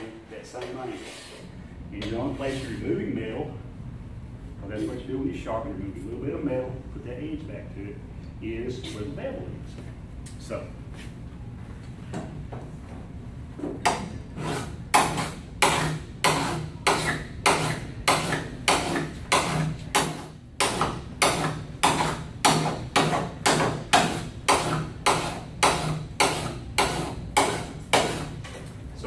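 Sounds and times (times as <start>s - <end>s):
hand file rasping on metal blade: 14.4s - 28.4s.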